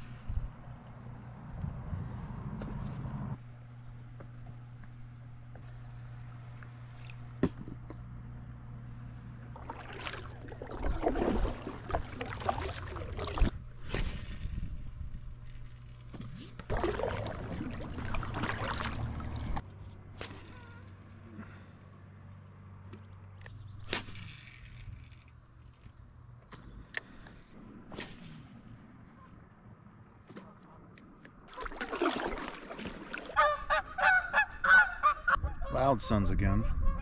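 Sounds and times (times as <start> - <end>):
low steady hum: 0.0 - 37.0
water sloshing and splashing: 9.2 - 14.6, 16.1 - 19.6, 31.2 - 33.8.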